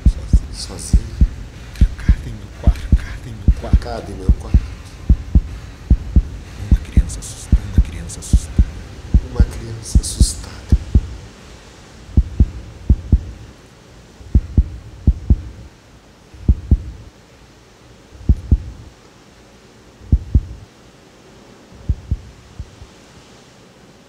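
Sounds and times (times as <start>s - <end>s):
heartbeat thumps: 0.0s - 11.3s, 12.1s - 13.5s, 14.2s - 15.7s, 16.4s - 17.1s, 18.2s - 18.9s, 20.0s - 20.6s, 21.8s - 22.8s.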